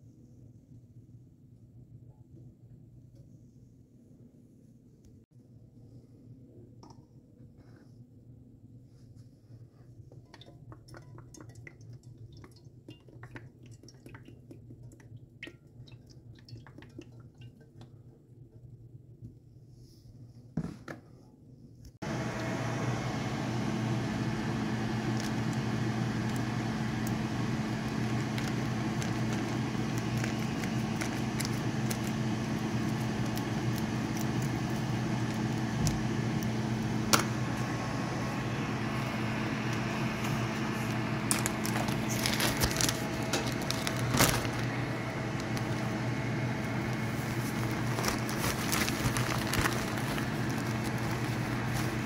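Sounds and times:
electric hum: 22.0 - 52.0
plastic bags crinkling: 25.0 - 35.6, 40.3 - 52.0.

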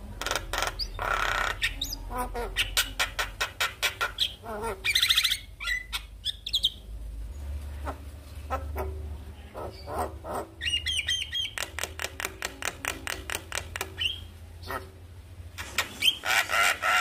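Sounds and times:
bird singing varied song: 0.3 - 6.8, 9.5 - 14.9
bird rasping call: 16.0 - 17.0.

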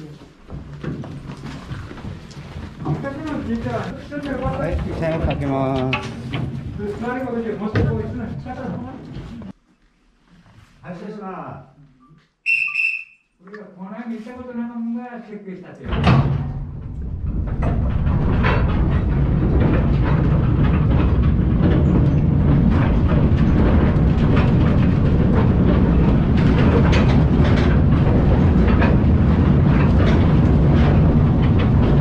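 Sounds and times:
wheels clattering over rail joints: 0.5 - 8.8, 15.9 - 32.0
mine train rumbling on rails: 16.2 - 32.0.

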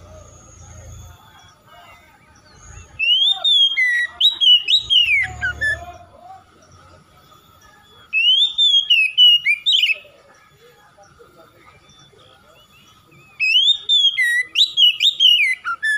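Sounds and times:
bird singing gliding whistles: 0.0 - 15.9.

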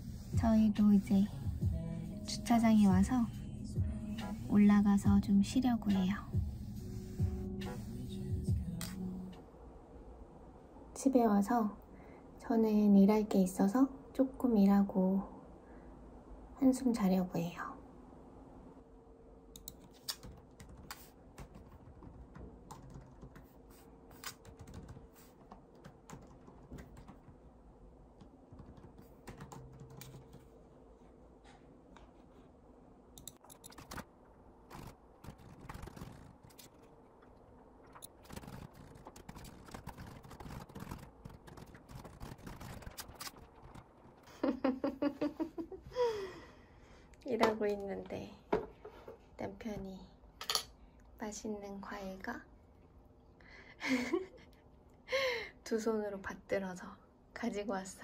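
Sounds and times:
faint steady hum: 0.0 - 58.0
laptop keyboard typing: 19.6 - 27.4, 28.2 - 30.5, 33.2 - 34.1, 34.7 - 36.9, 37.9 - 44.6.

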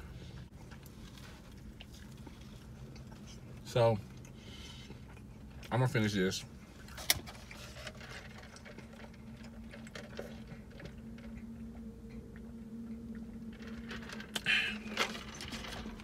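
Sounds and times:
low hum: 0.0 - 16.0
slurp and cup rattle: 6.8 - 11.4.

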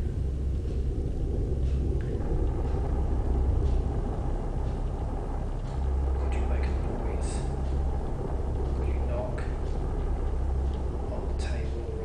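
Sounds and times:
low rumble and hum: 0.0 - 12.0.

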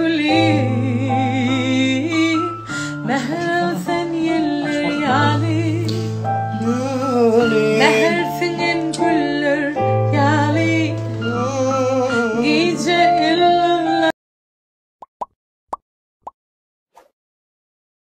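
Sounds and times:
woman singing pop song: 0.0 - 14.1.

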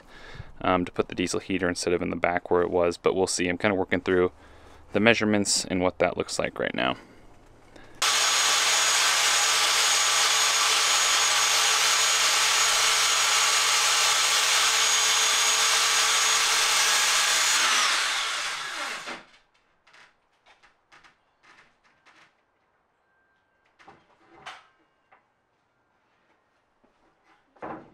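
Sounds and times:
saw motor winding down: 8.0 - 19.3
circular saw cutting plywood: 8.0 - 19.4.

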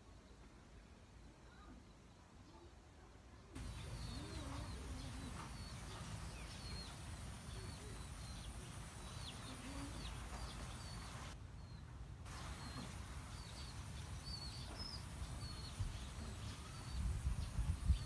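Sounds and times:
outdoor hiss: 3.4 - 18.0
birds chirping: 3.6 - 18.0.

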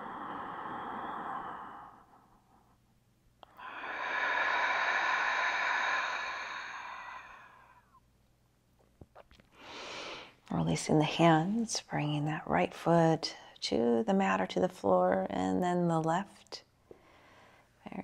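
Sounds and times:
woman exhaling: 0.0 - 2.4, 3.5 - 8.0
woman inhaling: 0.0 - 2.8, 3.4 - 8.0, 9.5 - 10.4, 16.9 - 17.8.

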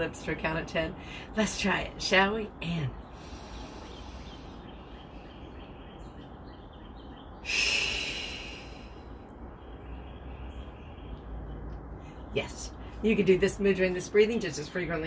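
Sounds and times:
woman exhaling through lips: 7.4 - 9.0
woman inhaling through nose: 7.4 - 9.0.

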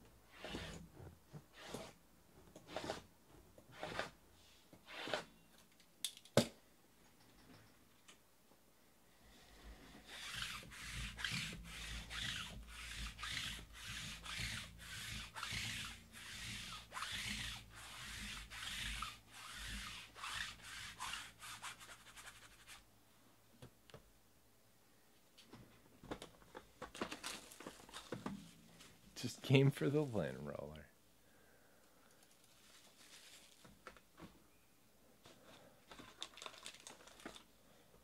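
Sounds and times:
rubbing strokes: 9.7 - 22.8
plastic wrap tearing: 27.0 - 28.2, 32.2 - 34.0, 35.9 - 37.5.

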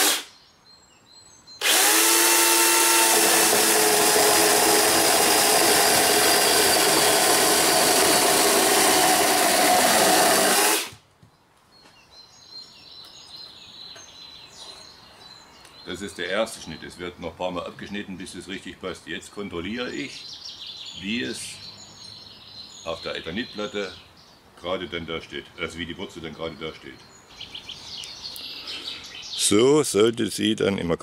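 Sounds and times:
electric chainsaw cutting wood: 0.0 - 0.3, 1.6 - 11.0.

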